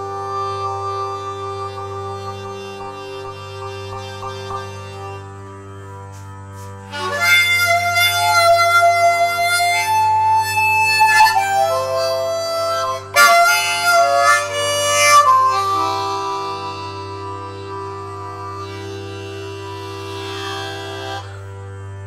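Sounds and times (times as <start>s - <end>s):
harmonica melody: 0.0s - 22.0s
steady low drone: 0.0s - 22.0s.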